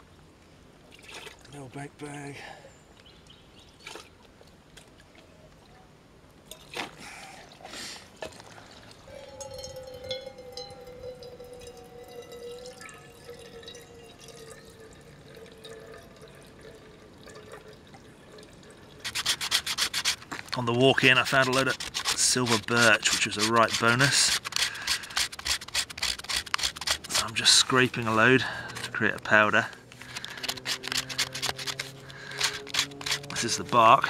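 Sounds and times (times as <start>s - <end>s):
water trickling and dripping: 8.2s - 19.3s
thin steady tone: 9.0s - 19.0s
knife scraping bark: 19.0s - 20.3s, 21.0s - 29.2s, 30.0s - 33.8s.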